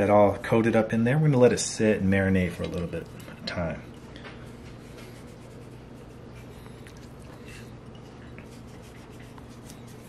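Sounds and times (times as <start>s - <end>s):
fingers rubbing seasoning on meat: 4.5s - 7.7s, 8.4s - 10.0s.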